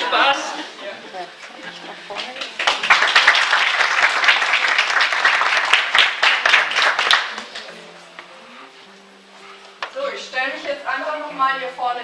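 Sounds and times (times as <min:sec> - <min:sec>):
audience applauding: 0:02.1 - 0:07.8.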